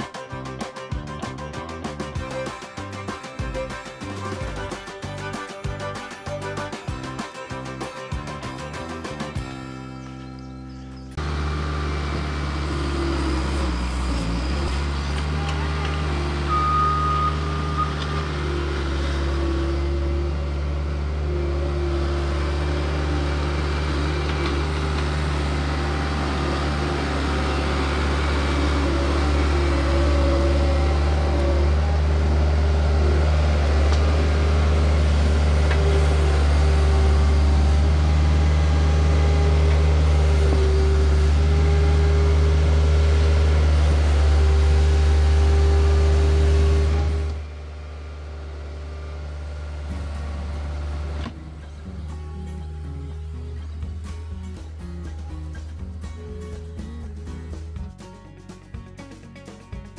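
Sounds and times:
loader engine running: 0.0s - 59.9s
short high beep: 16.5s - 18.0s.

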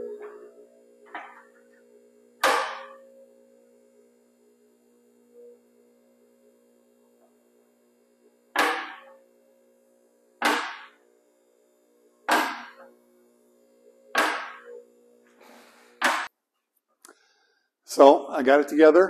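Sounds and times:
car lift rising: 0.0s - 11.1s, 12.2s - 16.3s.

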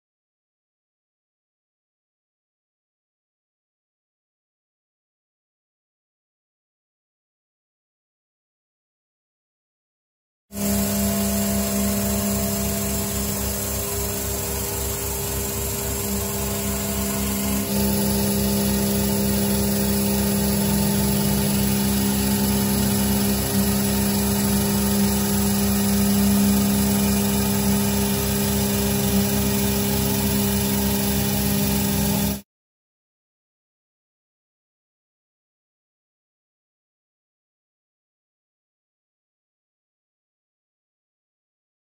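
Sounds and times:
milling machine cutting metal: 10.6s - 32.4s.

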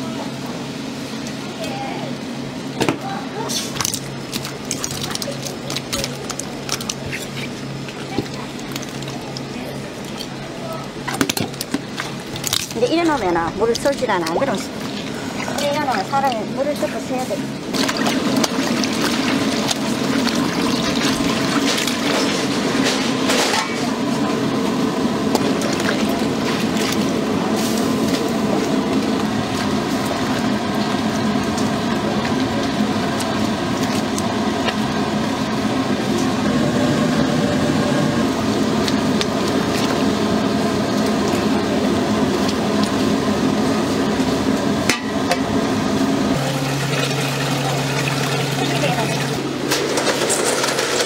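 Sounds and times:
running and splashing water: 3.6s - 22.7s, 46.4s - 49.4s.

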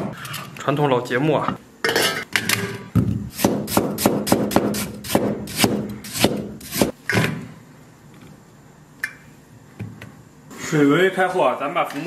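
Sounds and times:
cleaver chopping on wooden board: 3.4s - 6.9s.

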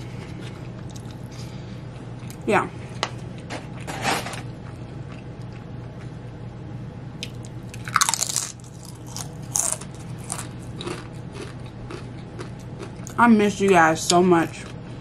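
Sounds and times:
chip crunching while chewed: 7.2s - 13.2s.

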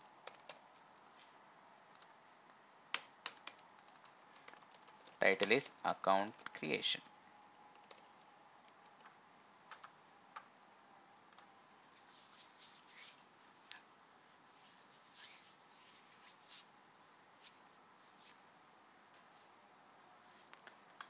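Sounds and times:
computer keyboard keystrokes: 0.2s - 0.6s, 2.9s - 5.6s, 6.2s - 8.1s, 8.7s - 10.5s.

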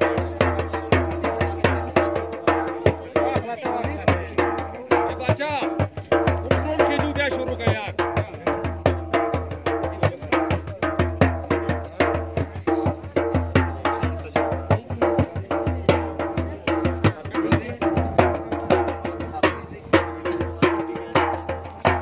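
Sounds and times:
frame drum fast rhythm: 0.0s - 22.0s.

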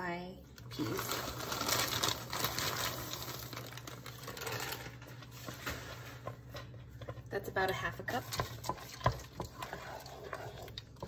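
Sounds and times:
frozen peas pattering into pot: 0.7s - 6.2s
plastic bag rustling: 0.7s - 6.5s.

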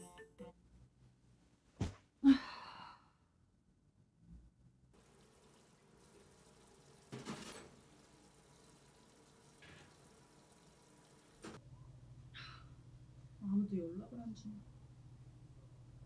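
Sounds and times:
person sighing: 2.2s - 3.2s
washing dishes in sink: 5.0s - 11.6s.

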